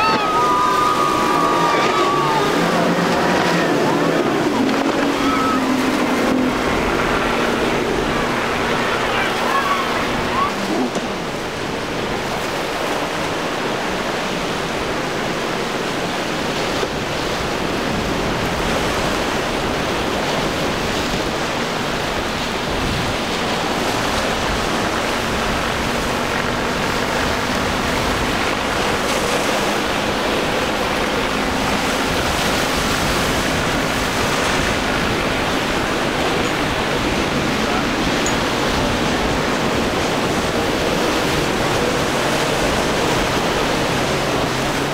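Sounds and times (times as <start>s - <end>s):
wind rushing: 0.0s - 13.7s
surf breaking: 0.0s - 44.9s.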